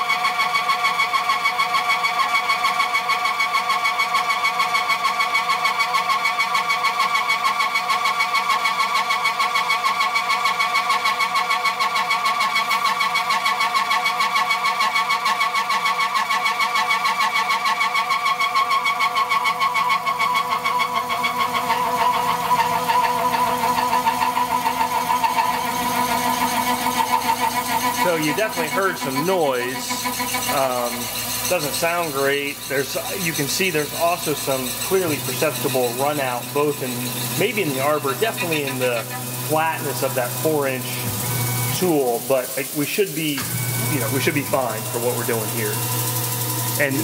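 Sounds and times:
milling cutter ringing whine: 11.2 - 47.0.

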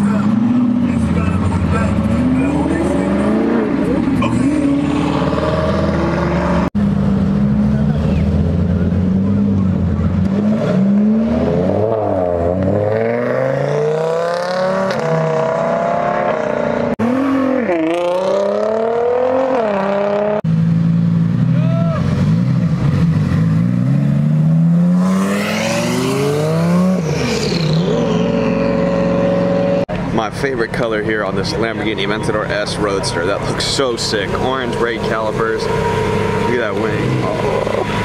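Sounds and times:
sports car engines accelerating: 0.0 - 38.0.

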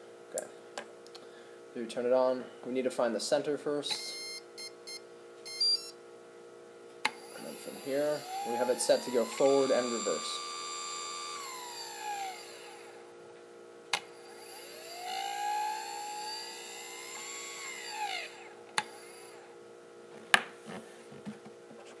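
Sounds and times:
speed controller high whine: 3.9 - 6.0, 7.0 - 19.5
electric motor whining: 7.1 - 13.4, 14.0 - 19.4.

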